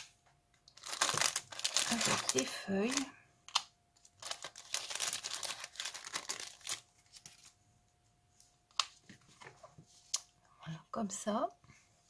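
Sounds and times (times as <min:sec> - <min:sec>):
plastic packaging crinkling: 0:00.7 - 0:07.6.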